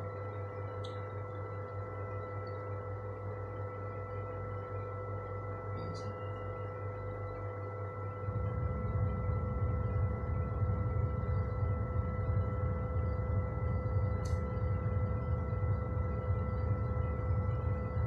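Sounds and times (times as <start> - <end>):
light fan and motors humming: 0.0 - 18.0.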